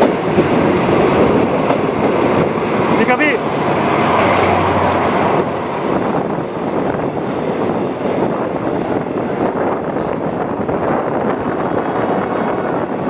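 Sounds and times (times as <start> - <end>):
passing train coaches rushing: 0.0 - 13.0
wind on microphone: 0.0 - 13.0.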